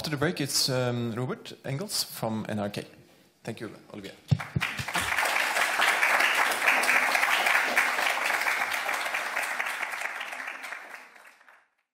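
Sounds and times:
audience applauding: 4.3 - 11.9.

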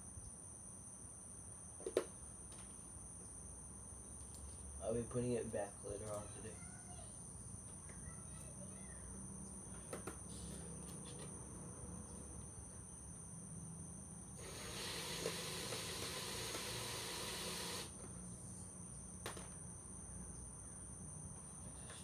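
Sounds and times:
high insect drone: 0.0 - 22.0
cordless drill running: 14.4 - 18.0.

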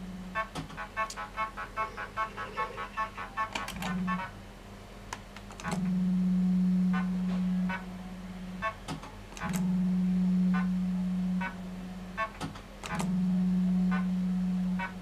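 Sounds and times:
fruit machine reel motor hum: 0.0 - 15.0
reels stopping clicks: 8.6 - 9.7, 12.2 - 13.2.

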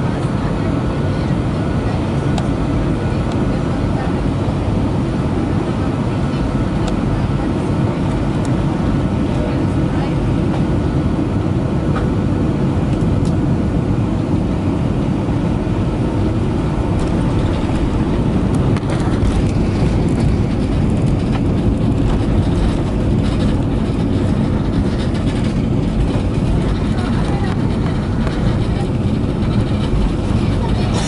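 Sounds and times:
jet airliner cabin roar: 0.0 - 31.0
light rattles: 16.9 - 31.0.

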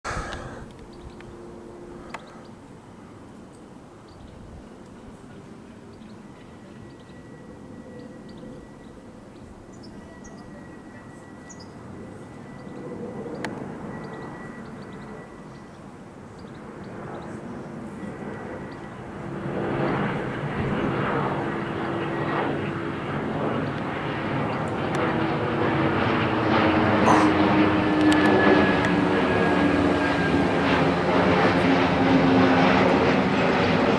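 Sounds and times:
jet passing overhead: 0.0 - 33.9.

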